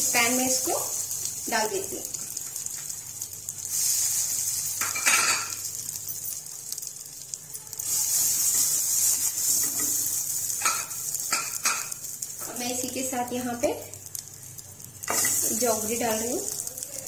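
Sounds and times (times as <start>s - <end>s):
paste sizzling in frying pan: 0.0s - 17.0s
spatula stirring in pan: 6.7s - 12.6s.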